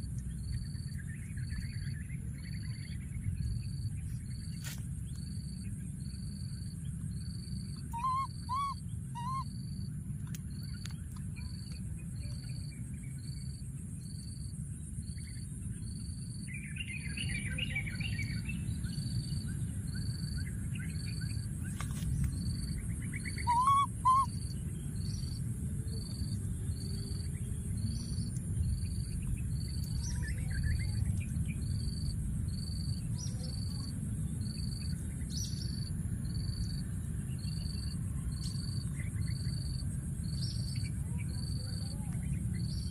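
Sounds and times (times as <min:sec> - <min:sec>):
steady low rumble: 0:00.0 - 0:42.9
baby monkey calling: 0:07.8 - 0:09.5, 0:23.3 - 0:24.5.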